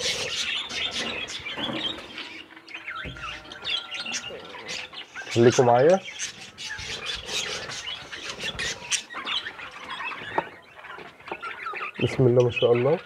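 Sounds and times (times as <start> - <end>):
budgerigars chirping: 0.0 - 13.0.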